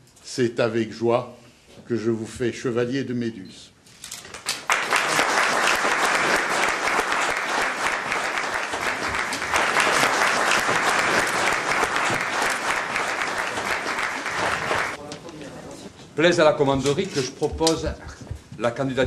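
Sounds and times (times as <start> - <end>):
crowd applauding: 4.4 - 15.0.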